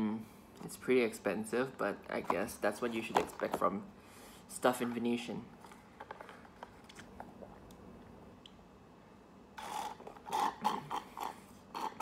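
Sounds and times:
slurping through a straw: 9.6 - 12.0.

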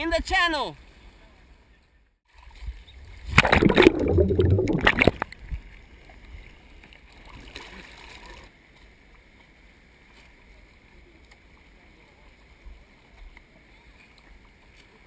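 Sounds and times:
water splashing and sloshing: 2.3 - 10.6
water lapping softly: 2.3 - 15.0.

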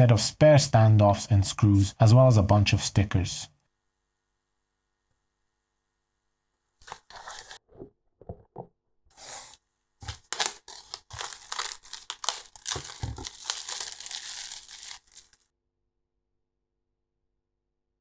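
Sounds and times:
plastic bag crinkling: 6.8 - 7.6, 9.2 - 15.4.

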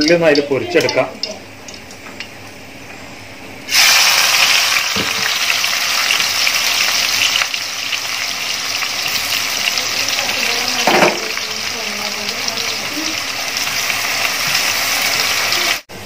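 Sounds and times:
onions sizzling in hot oil: 3.6 - 15.9.

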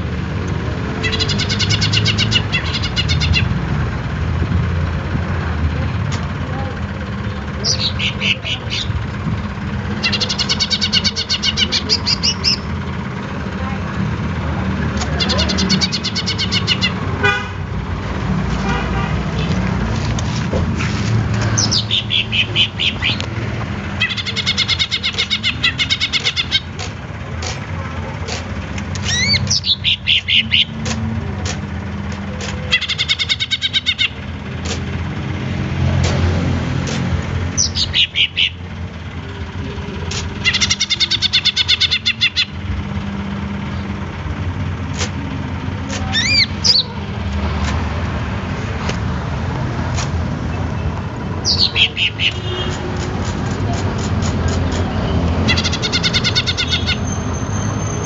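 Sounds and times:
bird high rapid trill: 1.0 - 3.6, 9.9 - 12.8, 15.2 - 17.1, 21.5 - 23.2, 23.8 - 26.8, 29.0 - 30.8, 32.6 - 34.4, 37.5 - 38.6, 40.3 - 42.7, 46.1 - 47.0, 51.4 - 52.9, 54.0 - 58.0.

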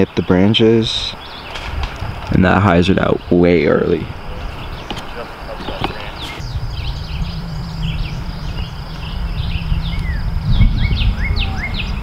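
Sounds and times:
small birds chirping: 0.0 - 12.0
wind rumble on microphone: 0.0 - 12.0.

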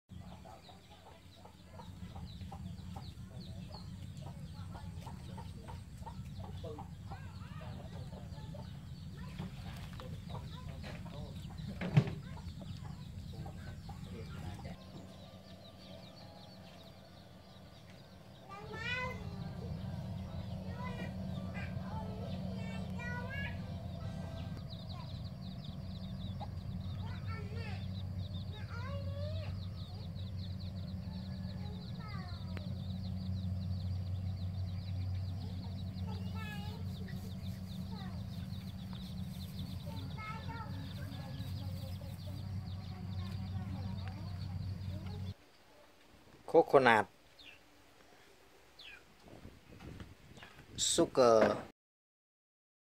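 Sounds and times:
chickens clucking: 0.1 - 45.4
steady low hum: 0.2 - 45.4.

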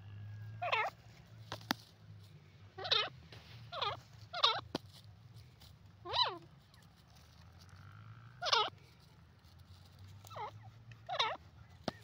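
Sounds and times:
francolin quavering calls: 0.0 - 1.0, 2.8 - 4.7, 8.4 - 8.8, 10.3 - 12.0.

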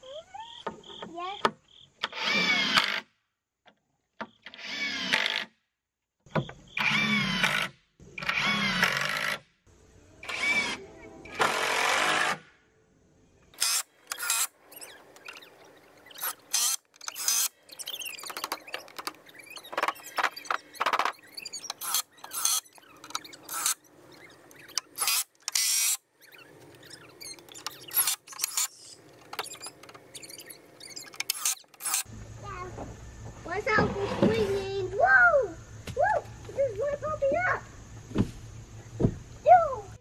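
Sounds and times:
cordless drill driving screws into wood: 2.0 - 3.1, 4.4 - 5.5, 6.8 - 9.4, 10.2 - 12.5, 13.6 - 14.5, 16.1 - 23.8, 24.5 - 26.0, 26.9 - 30.0, 31.0 - 32.1.

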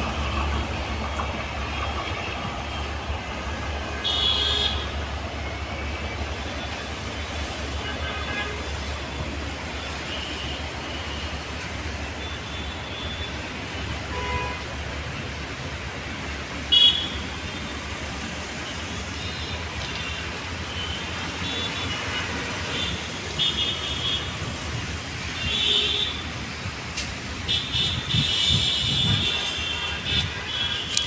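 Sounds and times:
road traffic rumble: 0.0 - 31.0
vehicle horn toots: 4.0 - 4.9, 27.5 - 31.0.

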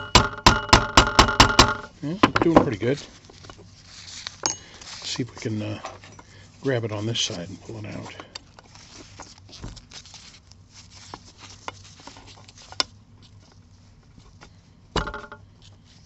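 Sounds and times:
hand tools clicking and scraping metal: 1.6 - 6.3.

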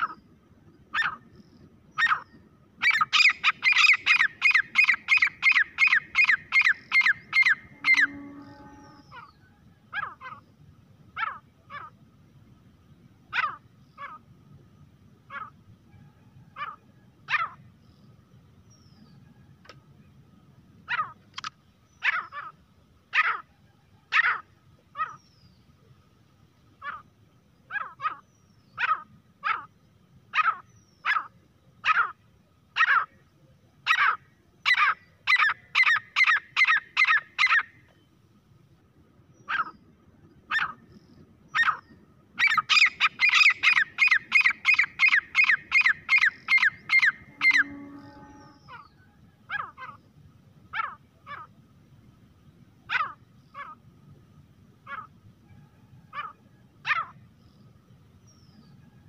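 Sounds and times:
francolin calling: 0.0 - 10.6, 26.8 - 38.1, 39.3 - 50.1.

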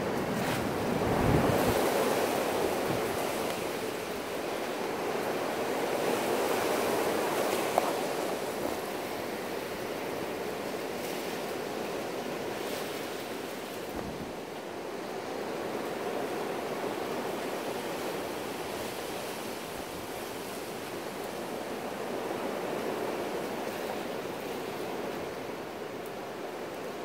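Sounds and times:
gusty wind rushing: 0.0 - 8.6
wind buffeting microphone: 0.0 - 10.5, 13.9 - 14.5.

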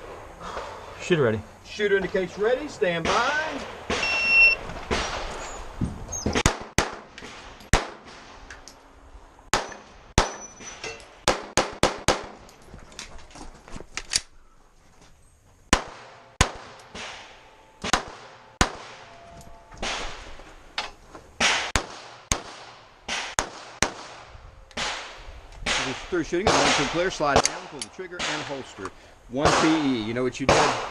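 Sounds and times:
pistol shots: 6.4 - 8.3, 9.5 - 10.6, 11.2 - 12.4, 15.7 - 19.2, 19.8 - 20.3, 21.4 - 28.6, 29.4 - 30.9.

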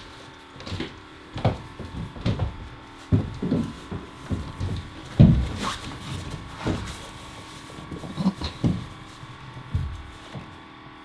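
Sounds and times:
thumps on hollow hull: 0.6 - 10.6.

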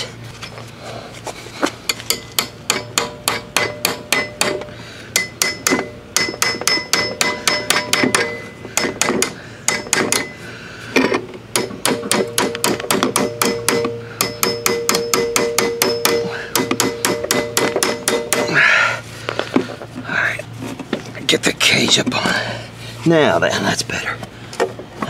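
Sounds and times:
hammer striking sheet metal: 2.1 - 10.4, 11.5 - 18.6.

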